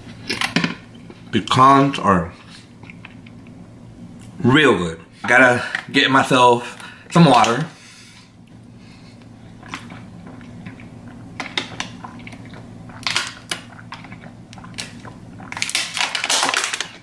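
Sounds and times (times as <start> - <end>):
steady low hum: 0.0 - 17.0
plastic bottle crinkling: 13.0 - 17.0.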